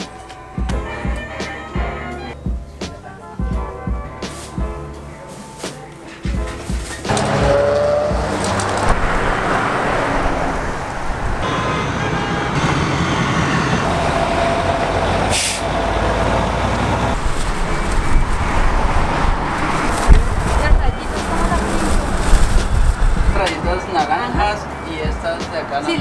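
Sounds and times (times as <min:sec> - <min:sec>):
traffic rumble on busy road: 0:04.2 - 0:26.0.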